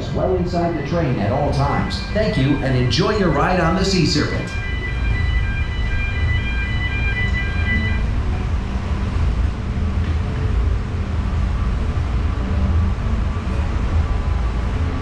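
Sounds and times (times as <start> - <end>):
low machinery rumble: 0.0 - 15.0
high electronic beeps: 0.1 - 8.1.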